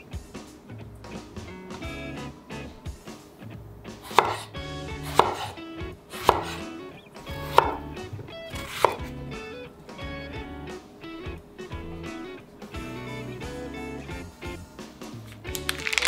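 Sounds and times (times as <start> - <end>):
soft guitar music: 0.0 - 16.0
knife chopping on cutting board: 4.0 - 9.1.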